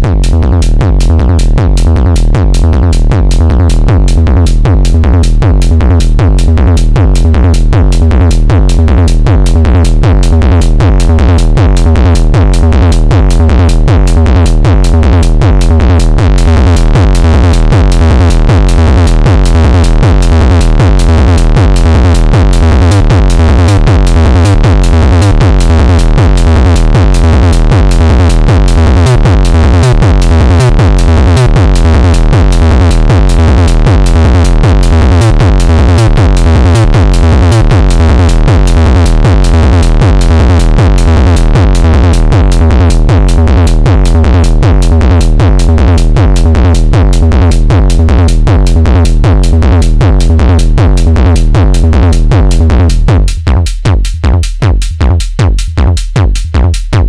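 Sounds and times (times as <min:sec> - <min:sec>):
synthesized kick drum hits: 0:00.0 - 0:57.0.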